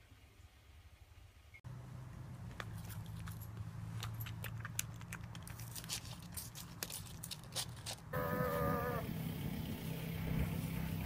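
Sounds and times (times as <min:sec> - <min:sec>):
dog crunching ice: 0:02.7 - 0:08.2
steady low hum: 0:08.1 - 0:11.0.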